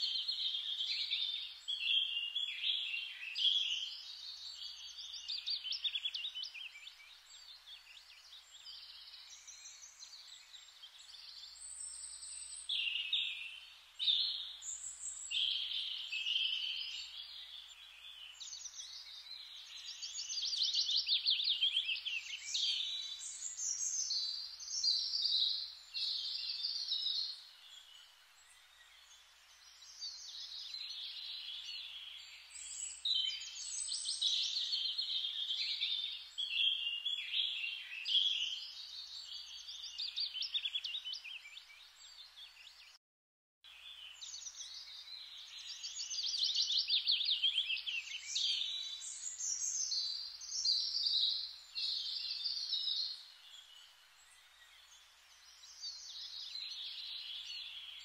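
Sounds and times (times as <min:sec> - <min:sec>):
faint hiss: 0:00.0 - 0:41.4
birds chirping and singing: 0:00.0 - 0:43.0, 0:43.8 - 0:58.0.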